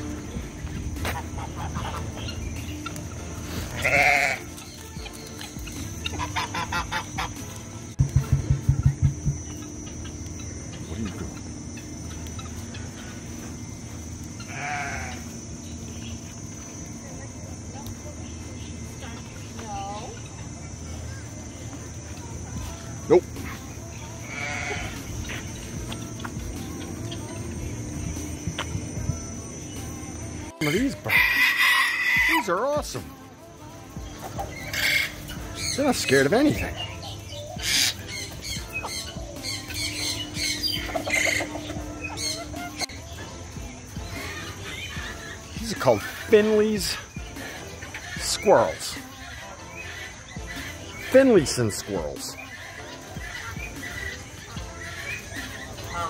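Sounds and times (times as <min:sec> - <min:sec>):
background music: 0:00.0 - 0:56.0
faint chirps: 0:00.0 - 0:56.0
high-pitched insect drone: 0:00.0 - 0:56.0
goat bleating: 0:03.7 - 0:04.6, 0:14.4 - 0:15.3, 0:24.2 - 0:25.1
low outdoor rumble: 0:07.3 - 0:30.6.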